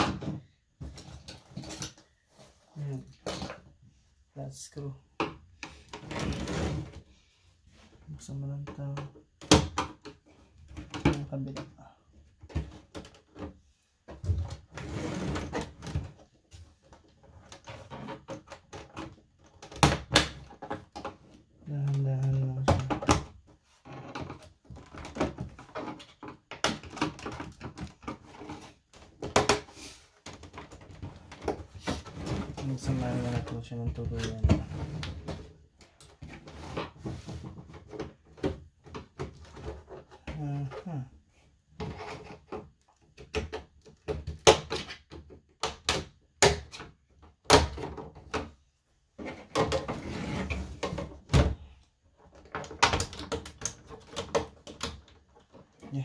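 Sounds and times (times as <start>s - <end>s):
plastic scraping: 5.6s - 7.2s, 14.2s - 41.0s.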